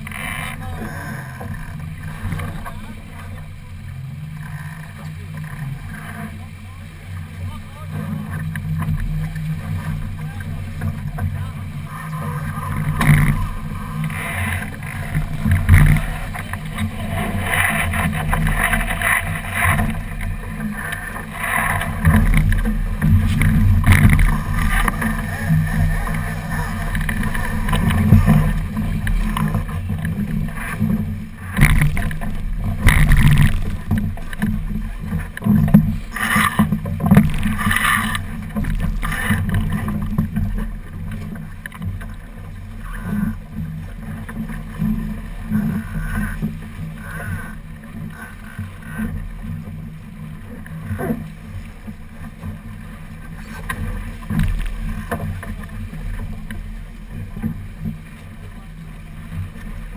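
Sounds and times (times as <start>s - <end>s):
water rushing along hull: 0.0s - 59.9s
wind rumbling on microphone: 0.0s - 59.9s
knocks and rattles of lines: 14.8s - 30.2s, 30.8s - 40.6s.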